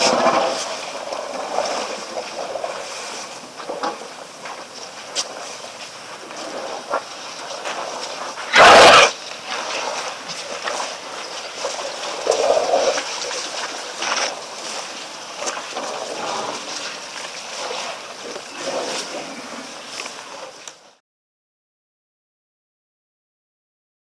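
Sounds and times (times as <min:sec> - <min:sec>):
loud water splash: 0:08.2 - 0:20.0
water sloshing and dripping: 0:09.1 - 0:20.9.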